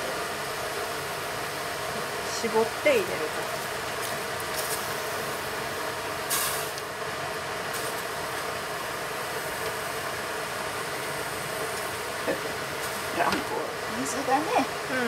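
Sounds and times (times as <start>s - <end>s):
brief hiss: 6.3s - 6.8s.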